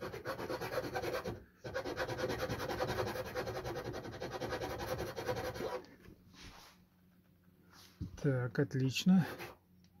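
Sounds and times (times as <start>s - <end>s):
hand file rasping: 0.0s - 5.9s, 9.2s - 9.6s.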